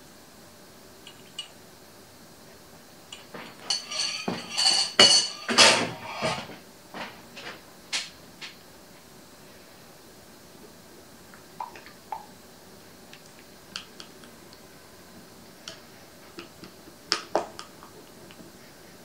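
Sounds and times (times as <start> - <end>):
spatula scraping glass bowl: 3.7 - 6.5.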